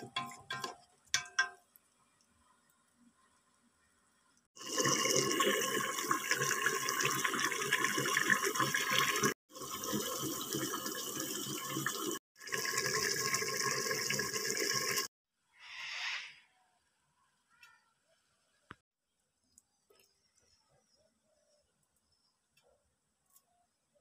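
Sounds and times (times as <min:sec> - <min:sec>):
stew bubbling hard: 0:04.6 - 0:15.1.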